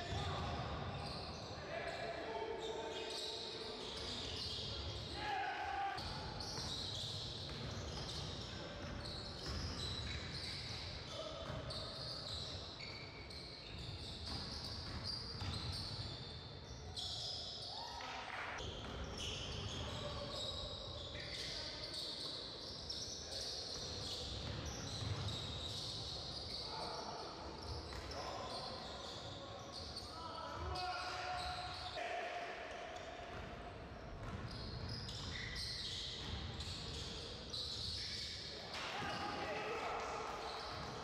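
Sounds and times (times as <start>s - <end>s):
basketball bouncing on court: 7.4s - 10.2s, 11.4s - 11.6s, 14.2s - 15.8s.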